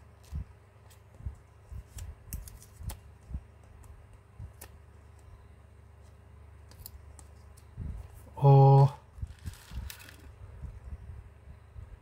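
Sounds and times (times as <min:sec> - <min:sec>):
faint handling noises: 0:09.1 - 0:10.9.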